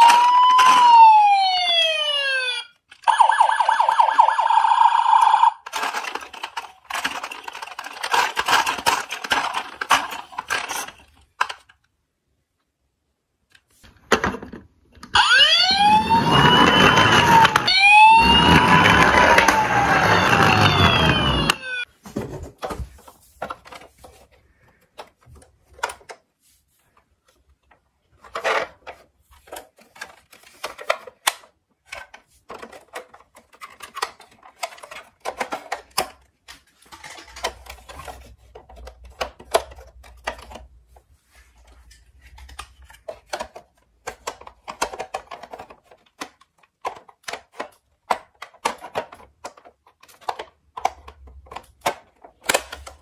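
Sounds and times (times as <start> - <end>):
plastic toy parts clicking: 5.6 - 11.9, 28.1 - 40.8, 41.9 - 53.0.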